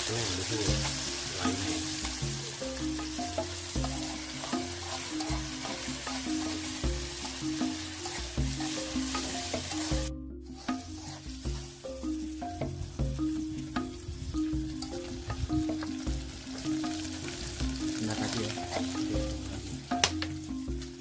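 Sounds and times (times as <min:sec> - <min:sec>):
metal spoon stirring in wok: 0:00.0 - 0:12.8, 0:14.6 - 0:19.7
food sizzling in hot oil: 0:00.0 - 0:21.0
low background music: 0:00.0 - 0:21.0.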